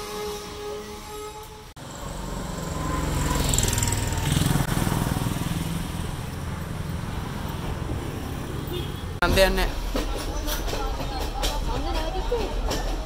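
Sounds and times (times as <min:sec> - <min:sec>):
vehicle engine passing by: 0:01.8 - 0:09.2.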